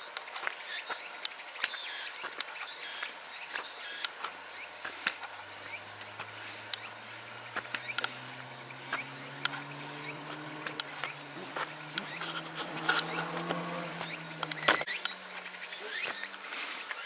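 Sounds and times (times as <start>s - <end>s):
faint insect hum: 0.0s - 17.0s
light ticks and clicks: 3.6s - 17.0s
low rising hum: 4.4s - 16.4s.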